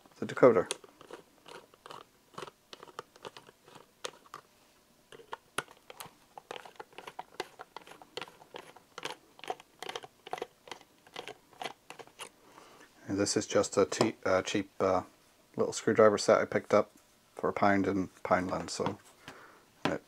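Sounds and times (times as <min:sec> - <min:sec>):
plastic rubbing on foam: 0:00.7 - 0:04.4, 0:05.1 - 0:12.3.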